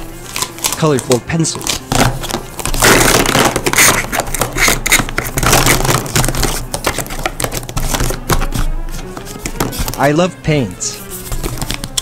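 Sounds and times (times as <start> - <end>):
plastic markers clicking: 11.3 - 12.0.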